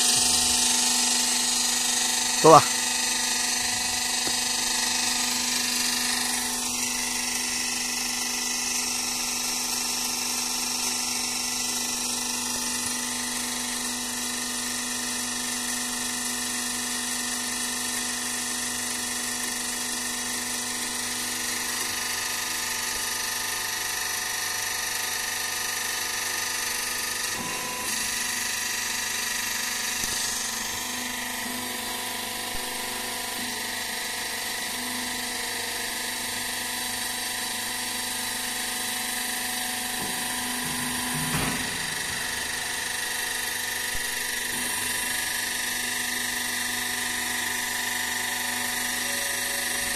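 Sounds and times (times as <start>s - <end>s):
hydraulic power unit whining: 0.0s - 14.9s, 25.2s - 49.9s.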